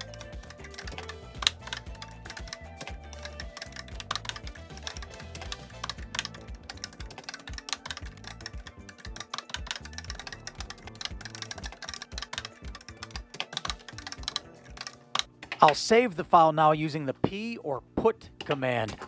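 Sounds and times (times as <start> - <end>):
background music with bass line: 0.0 - 14.8
keyboard keys clicking: 0.0 - 15.7.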